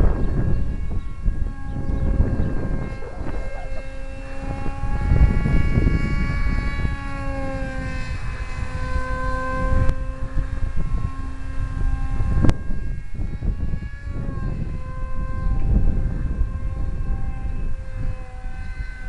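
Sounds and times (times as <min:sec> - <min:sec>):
model plane motor whining: 0:00.0 - 0:19.0
wind rumble on microphone: 0:00.0 - 0:19.0.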